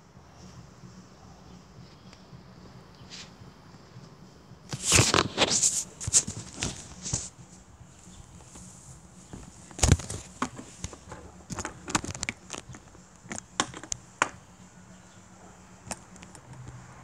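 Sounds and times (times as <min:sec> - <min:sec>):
fingers rubbing on microphone: 0:04.7 - 0:14.0.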